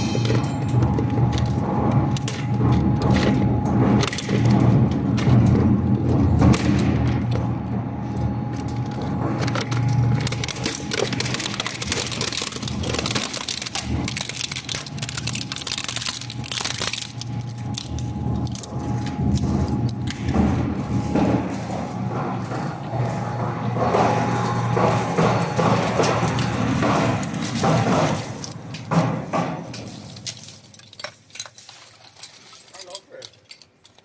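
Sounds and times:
plastic cracking and snapping: 8.6s - 20.4s.

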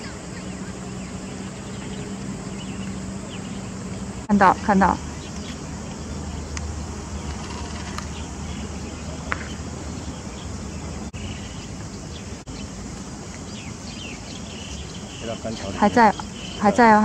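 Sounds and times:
faint insect chirring: 0.0s - 17.0s
faint bird chirps: 13.4s - 17.0s.

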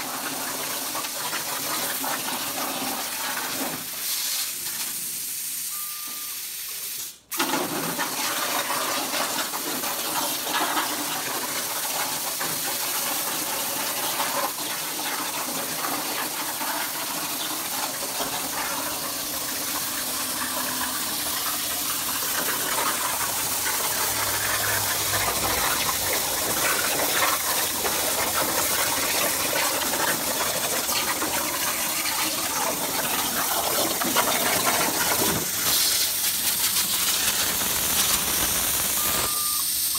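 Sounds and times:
plasma torch hissing: 3.9s - 5.7s, 35.4s - 39.9s.

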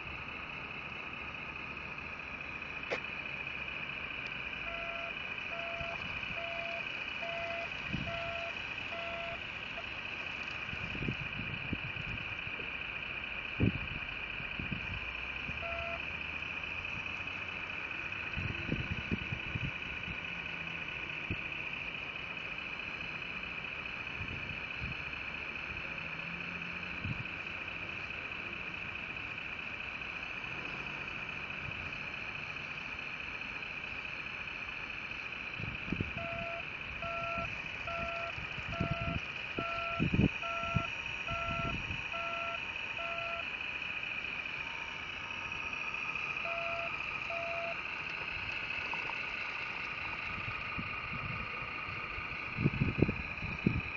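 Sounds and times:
high-pitched motor whine: 0.0s - 53.9s
reversing alarm beeps: 4.5s - 9.9s, 13.6s - 17.4s, 35.6s - 43.6s, 44.2s - 49.0s.

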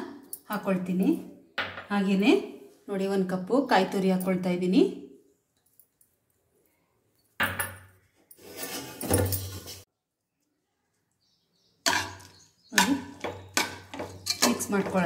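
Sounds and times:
spoon scraping metal pot: 8.3s - 9.8s, 11.9s - 15.0s.

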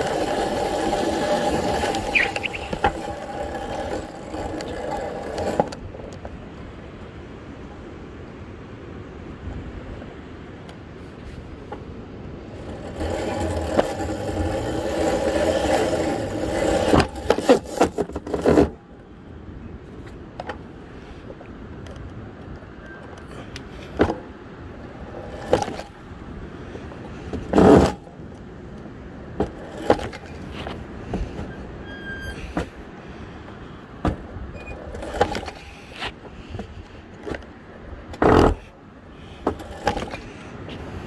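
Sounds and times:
e-bike motor whine: 0.0s - 5.8s, 12.4s - 18.7s, 21.8s - 37.5s
knocks and scrapes on wooden steps: 0.0s - 5.8s, 12.6s - 18.8s, 27.2s - 28.0s, 29.4s - 32.8s, 34.0s - 37.4s, 38.1s - 38.7s, 39.4s - 41.0s.

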